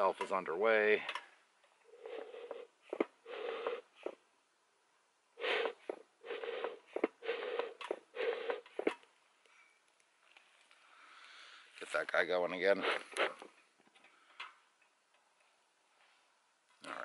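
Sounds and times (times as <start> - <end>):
bellows breathy puffs: 1.9 - 4.2, 5.4 - 9.0, 12.8 - 13.6.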